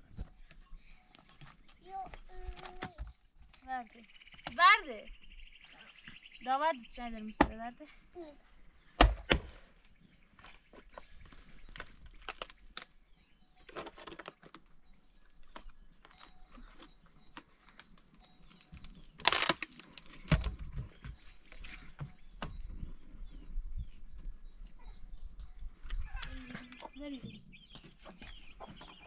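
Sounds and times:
hatchet chopping wood: 7.4 - 7.6, 9.0 - 9.6
wood splitting crackle: 9.0 - 9.6, 11.7 - 13.0, 18.5 - 20.6.

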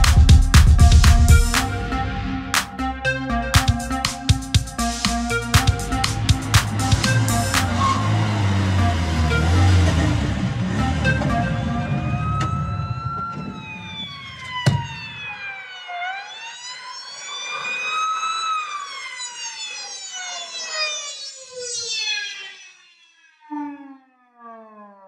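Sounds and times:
instrumental music with heavy bass: 0.0 - 12.4
sharp musical hit: 0.0 - 12.6
wailing siren: 0.0 - 25.0.

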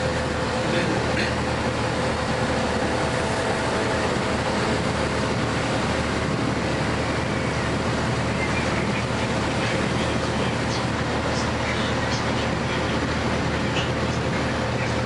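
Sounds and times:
bus engine hum: 0.0 - 15.0
road noise: 0.0 - 15.0.

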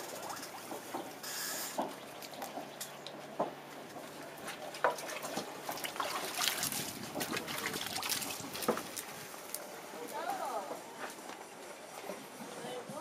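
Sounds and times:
wet paste squelching: 4.5 - 9.2.

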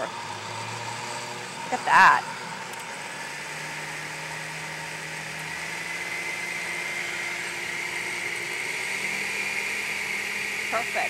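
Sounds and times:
blender motor whine: 0.0 - 11.0.

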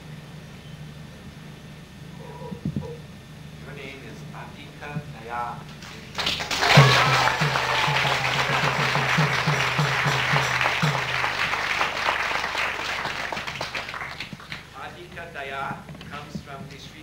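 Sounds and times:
crowd applauding and cheering: 5.7 - 14.8
low beats: 6.6 - 12.3.

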